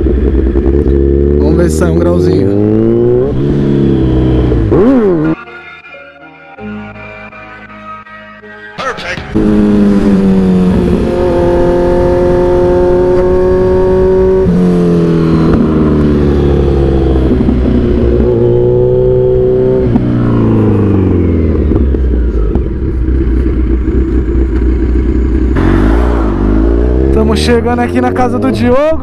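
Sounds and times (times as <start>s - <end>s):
motorcycle engine revving: 0.0s - 5.4s, 9.2s - 29.0s
wind noise: 9.4s - 25.2s.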